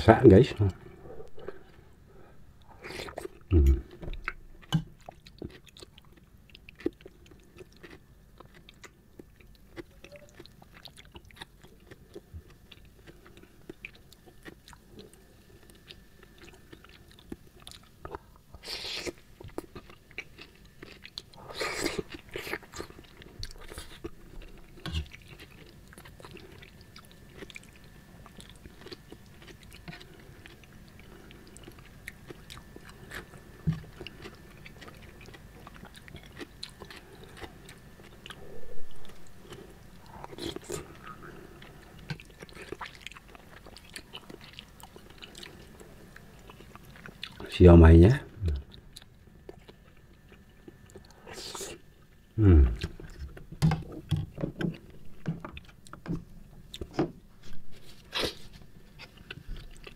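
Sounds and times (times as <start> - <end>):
wet chewing: 2.8 - 47.5.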